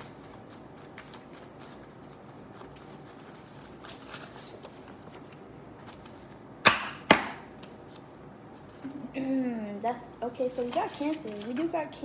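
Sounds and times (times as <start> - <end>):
cards being shuffled: 0.0 - 6.4, 10.6 - 11.8.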